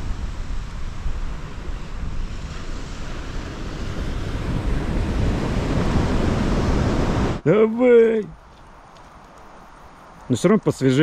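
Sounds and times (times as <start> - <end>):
wind buffeting microphone: 0.0 - 7.4
waves breaking on beach: 0.0 - 7.5.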